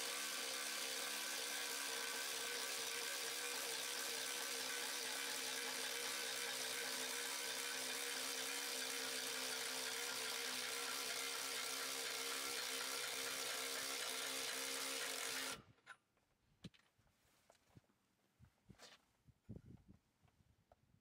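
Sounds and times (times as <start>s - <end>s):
motor whirring: 0.0s - 15.7s.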